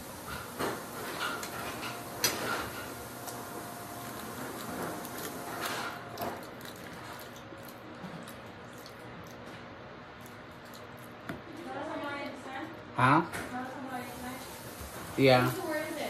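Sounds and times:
person chewing: 3.2s - 11.7s.

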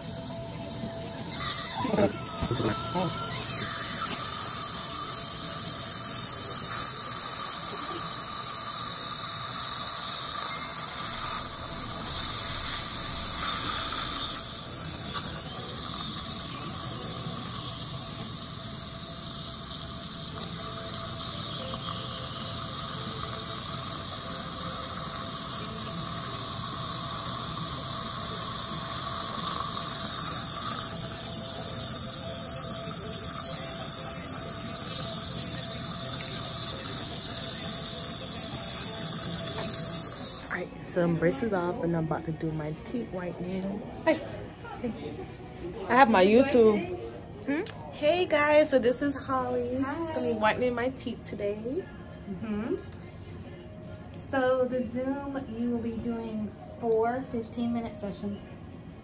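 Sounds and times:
saliva ejector sucking: 9.7s - 16.3s.

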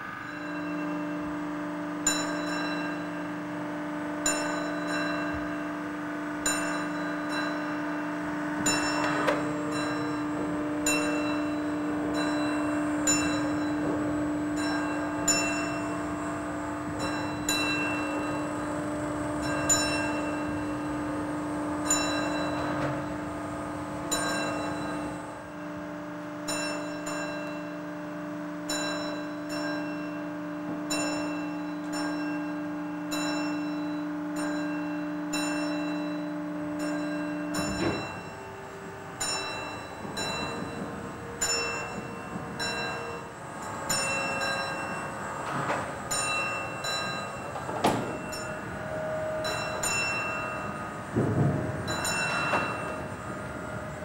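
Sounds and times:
steady hum: 0.0s - 54.0s
bell ringing: 41.4s - 51.2s, 51.8s - 53.2s.

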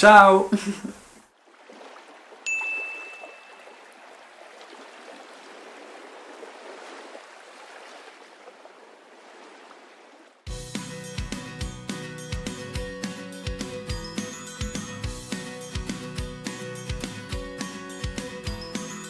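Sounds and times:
running water: 0.0s - 10.4s
bright chime: 2.5s - 3.8s, 13.9s - 15.4s
music: 10.5s - 19.0s.

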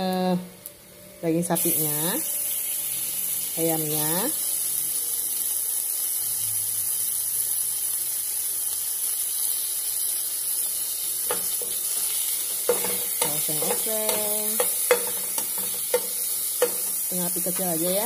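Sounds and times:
meat sizzling in hot oil: 1.3s - 18.0s
metal spatula clicking on pan: 12.5s - 17.9s.

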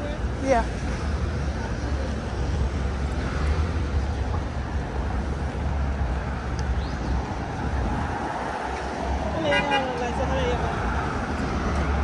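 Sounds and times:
city street traffic rumble: 0.0s - 12.0s.

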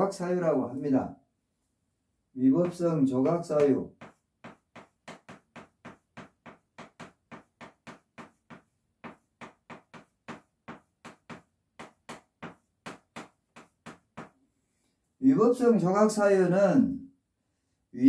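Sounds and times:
chalk tapping on chalkboard: 2.6s - 14.4s.

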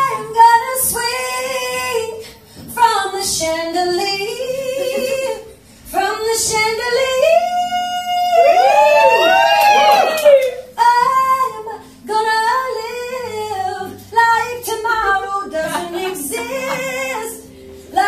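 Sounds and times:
woman singing into a microphone: 0.0s - 9.1s, 10.6s - 18.0s.

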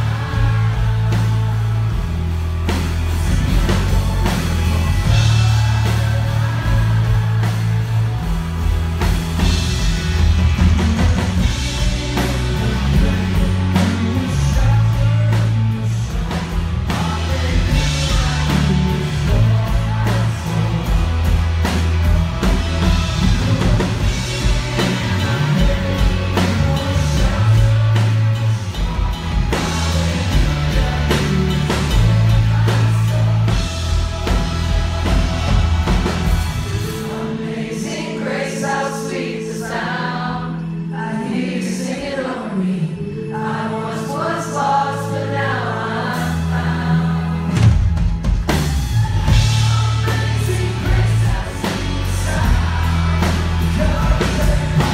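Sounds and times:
live pop-rock band: 0.0s - 54.9s
person singing: 10.8s - 47.8s, 49.1s - 54.9s.

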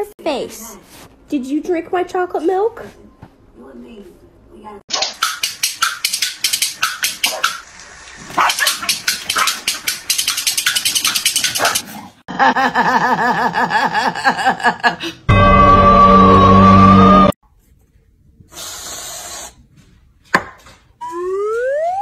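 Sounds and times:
dogs barking and snarling: 6.8s - 7.6s, 8.2s - 12.2s
wavering tune: 21.0s - 22.0s.

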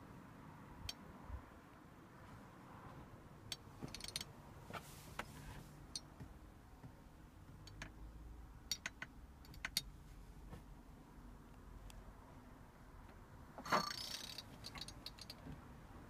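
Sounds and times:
faint irregular clicks: 3.5s - 10.6s, 13.9s - 15.7s.

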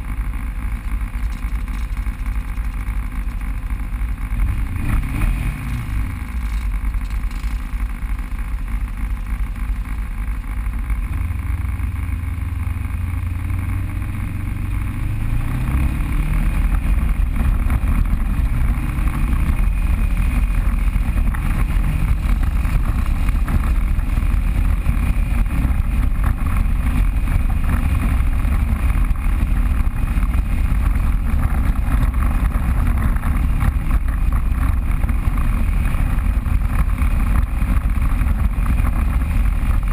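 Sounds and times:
vehicle engine running: 0.0s - 39.9s.

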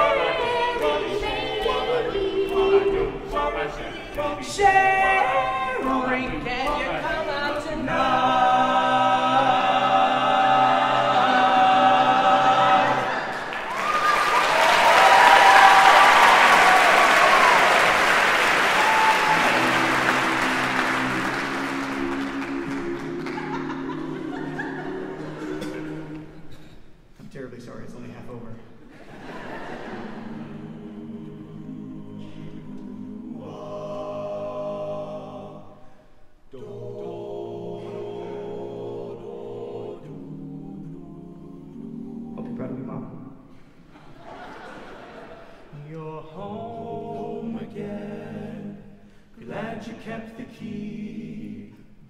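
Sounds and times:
a cappella group singing chord: 0.0s - 13.8s, 14.8s - 26.8s, 29.2s - 52.0s
audience applauding and cheering: 13.1s - 25.6s.

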